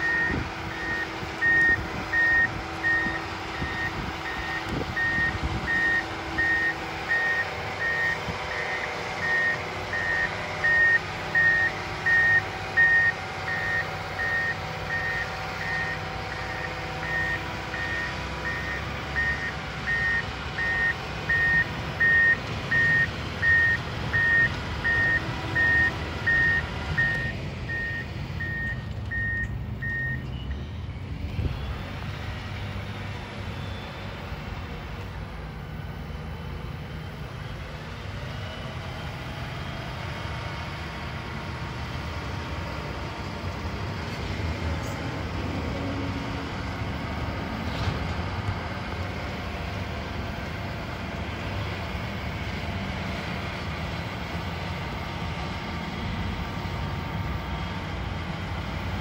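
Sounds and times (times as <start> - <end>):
reversing alarm beeping: 0.0 - 32.0, 33.5 - 34.1
diesel engine running: 0.0 - 59.0.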